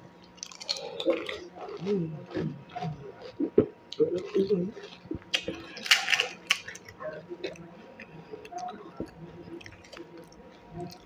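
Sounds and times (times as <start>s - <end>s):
crisp shells crackling: 4.2s - 7.0s.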